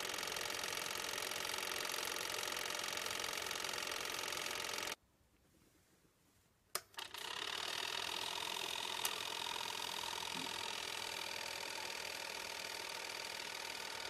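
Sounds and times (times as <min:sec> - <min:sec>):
film projector motor running: 0:00.0 - 0:05.0, 0:07.0 - 0:14.0
rewind arm click: 0:06.8 - 0:14.0.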